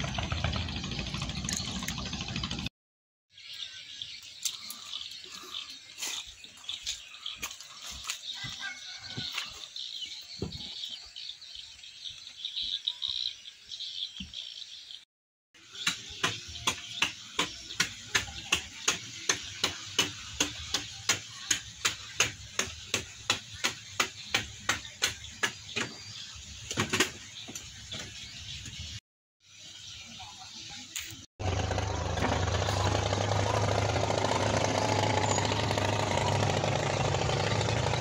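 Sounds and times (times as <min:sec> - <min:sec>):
bird chirps: 0:03.3 - 0:15.0.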